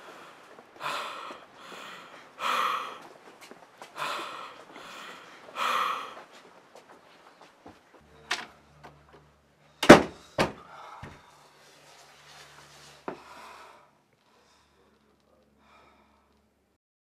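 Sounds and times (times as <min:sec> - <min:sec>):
hard breathing: 0:00.0 - 0:07.6, 0:09.6 - 0:16.5
front door slamming: 0:09.8 - 0:10.6.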